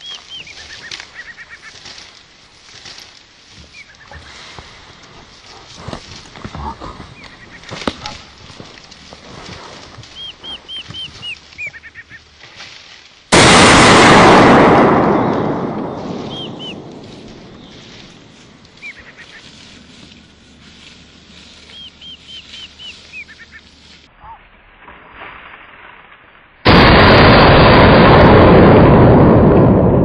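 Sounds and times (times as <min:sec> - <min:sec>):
loud rifle shot: 0:13.3 - 0:17.7
short high arching calls: 0:16.2 - 0:16.8, 0:18.8 - 0:19.6, 0:21.4 - 0:24.4.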